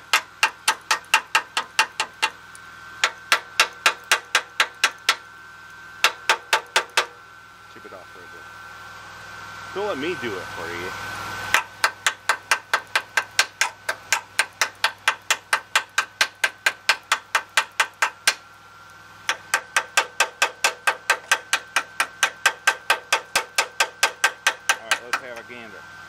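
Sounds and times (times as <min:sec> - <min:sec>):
chipping hammer tapping metal: 0:00.0 - 0:02.4, 0:03.0 - 0:05.2, 0:06.0 - 0:07.2, 0:11.5 - 0:18.4, 0:19.2 - 0:25.6.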